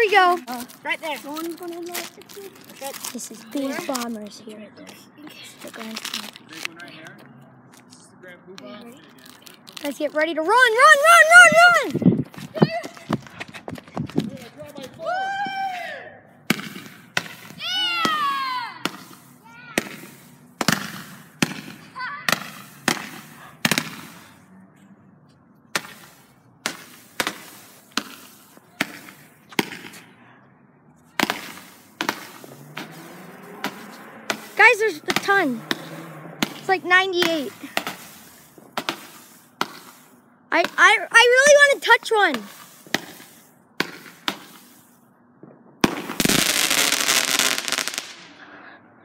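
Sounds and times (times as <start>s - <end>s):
firework bangs: 9.9s - 15.6s, 16.4s - 24.5s, 25.7s - 30.2s, 31.1s - 48.4s.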